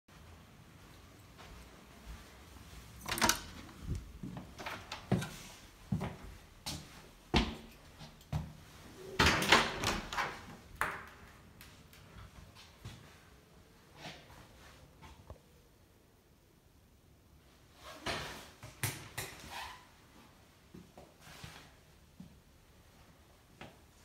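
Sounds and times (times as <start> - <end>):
door handles clicking: 3.0 - 3.9
doors opening and closing: 3.0 - 5.6, 8.9 - 10.7.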